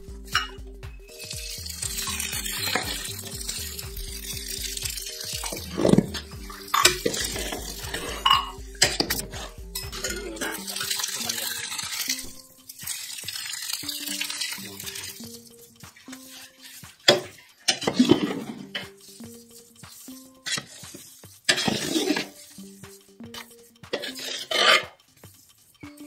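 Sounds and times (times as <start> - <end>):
metal ladle scraping a pot: 5.1 - 15.5, 16.1 - 22.4, 23.4 - 25.0.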